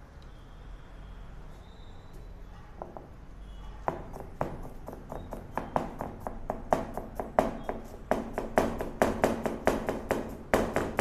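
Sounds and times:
knife chopping on cutting board: 3.9s - 11.0s.

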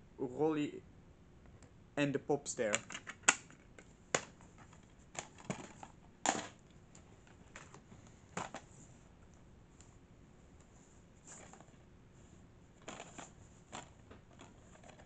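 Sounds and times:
plastic cases clicking and clacking: 2.7s - 6.6s, 8.4s - 8.7s, 12.8s - 15.0s.

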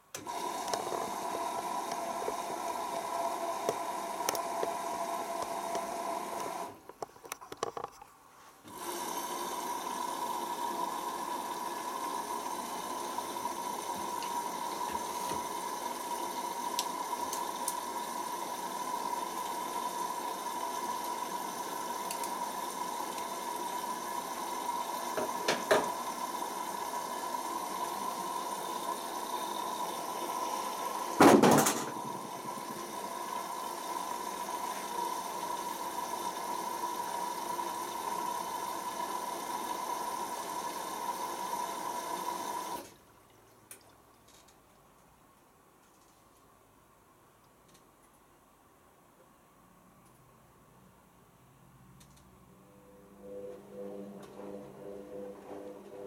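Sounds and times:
washing machine filling with water: 0.2s - 6.8s, 8.7s - 43.0s.

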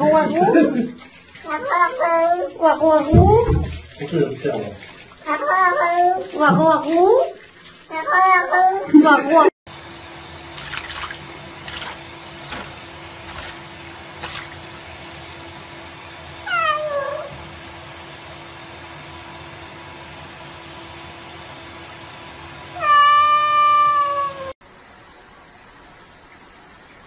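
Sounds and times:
light water splashes: 0.0s - 8.2s, 9.7s - 22.5s
tap water running: 0.0s - 8.8s, 9.4s - 27.0s
cat meowing: 16.4s - 17.3s, 22.8s - 24.6s.

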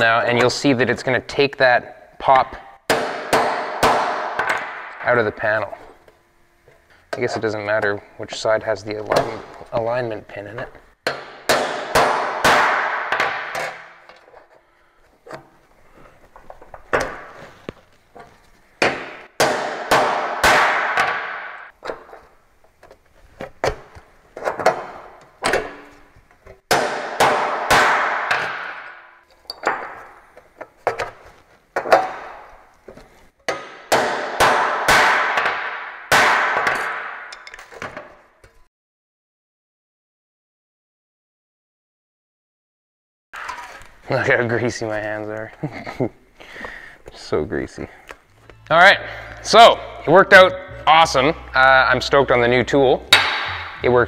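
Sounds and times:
hammer clanging on steel: 53.0s - 54.0s.

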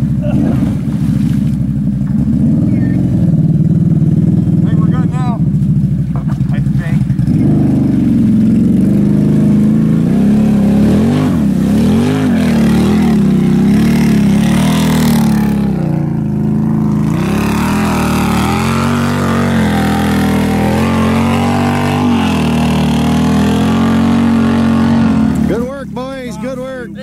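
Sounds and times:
quad engine revving hard: 0.0s - 1.0s, 2.2s - 5.4s, 7.0s - 27.0s
water and mud spraying: 6.1s - 26.9s.

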